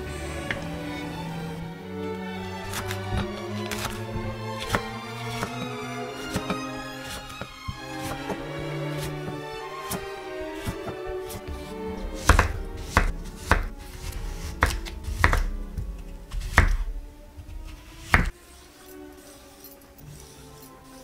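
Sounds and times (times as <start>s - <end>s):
background music: 0.0s - 21.0s
knife chopping on wooden board: 12.2s - 15.6s, 16.3s - 16.9s, 17.6s - 18.3s.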